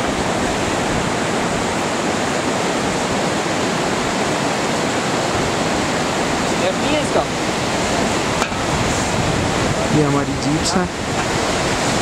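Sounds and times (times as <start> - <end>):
mountain stream rushing: 0.0 - 12.0.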